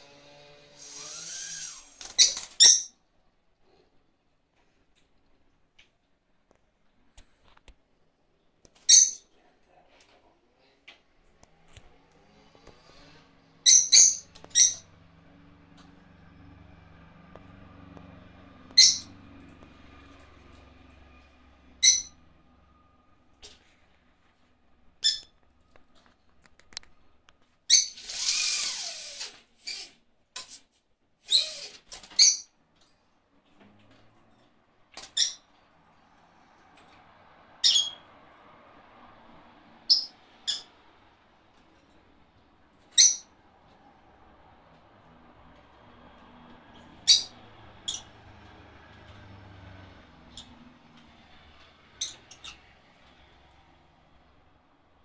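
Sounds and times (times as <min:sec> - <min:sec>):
parrots squawking: 0:00.8 - 0:02.9, 0:13.6 - 0:15.1, 0:18.7 - 0:19.2, 0:21.8 - 0:22.2, 0:37.6 - 0:38.0, 0:47.0 - 0:48.2.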